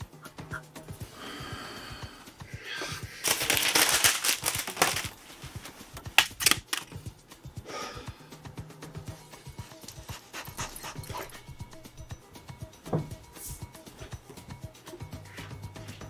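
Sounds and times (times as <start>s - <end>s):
paper crumpling: 3.2s - 6.9s.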